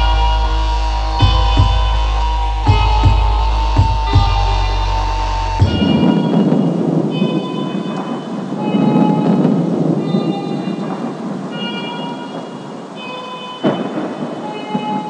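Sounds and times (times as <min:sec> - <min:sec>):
deep bass drone: 0:00.0 - 0:06.2
faint high steady tones: 0:00.0 - 0:15.0
rain and thunder ambience: 0:00.0 - 0:15.0.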